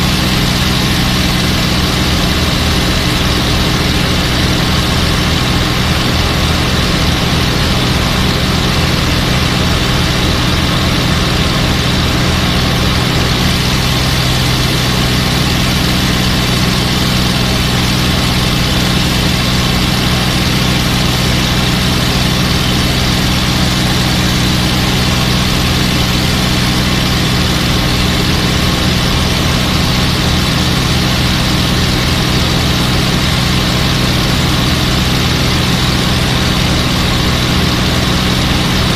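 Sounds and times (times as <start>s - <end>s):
piston aircraft engine droning: 0.0s - 38.9s
wind and airframe noise: 0.0s - 38.9s.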